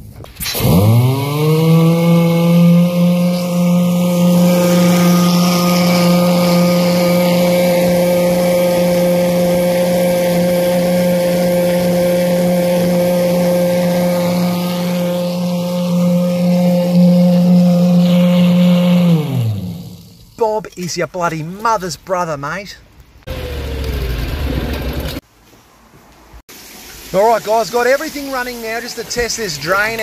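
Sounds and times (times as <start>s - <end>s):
drain jetter engine and pump: 0.4s - 20.2s
water hissing: 0.4s - 20.6s, 26.5s - 30.0s.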